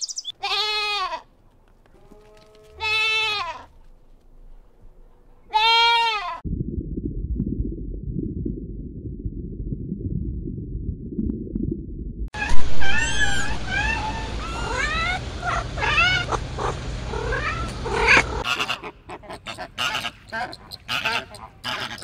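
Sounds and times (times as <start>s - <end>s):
muffled underwater rumble: 6.4s - 14.4s
flamingo flock calling: 18.0s - 22.0s.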